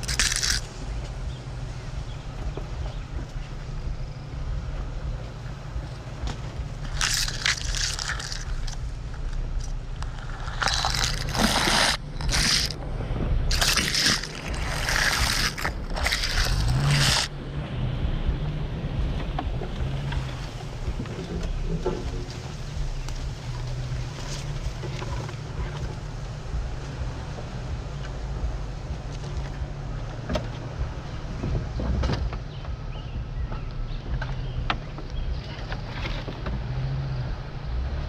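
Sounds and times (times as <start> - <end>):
branches scraping across truck: 0.0 - 1.2, 6.3 - 17.3
engine low rumble: 0.0 - 38.0.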